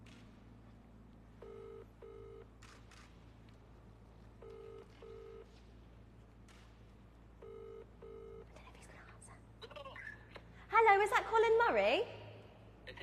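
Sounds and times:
phone ringback tone: 1.4s - 2.5s, 4.4s - 5.5s, 7.4s - 8.4s.

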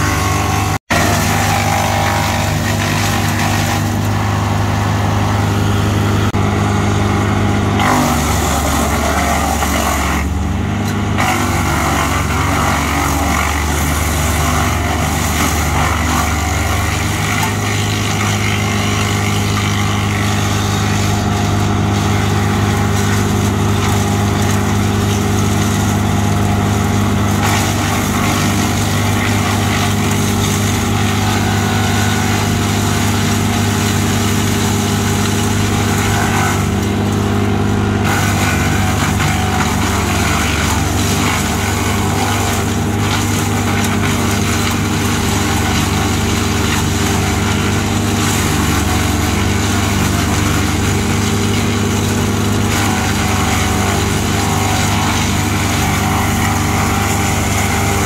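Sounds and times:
diesel engine hum: 0.0s - 58.0s
woodchipper grinding branches: 0.0s - 58.0s.

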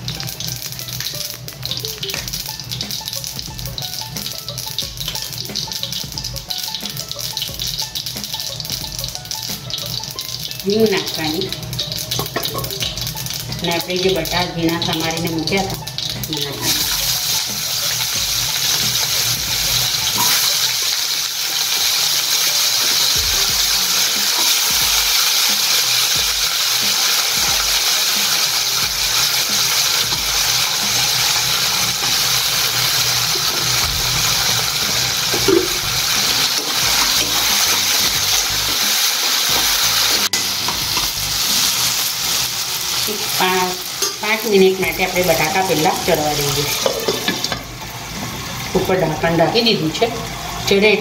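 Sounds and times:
potatoes sizzling in oil: 0.0s - 51.0s
spatula stirring: 15.6s - 42.4s, 45.0s - 47.8s.

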